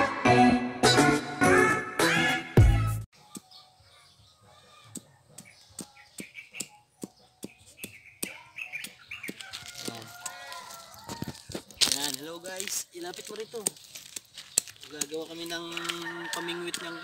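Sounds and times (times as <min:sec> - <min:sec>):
music: 0:00.0 - 0:04.6
birds chirping faintly: 0:03.2 - 0:11.1, 0:11.7 - 0:15.8.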